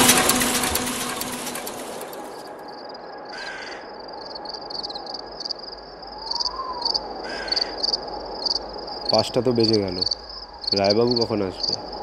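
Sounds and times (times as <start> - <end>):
insects trilling: 2.5 - 12.0
crow cawing: 3.3 - 4.1, 6.2 - 8.0.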